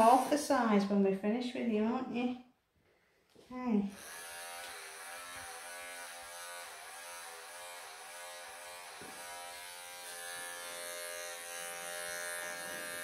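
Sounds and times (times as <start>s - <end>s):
electric clippers buzzing: 3.9s - 13.0s.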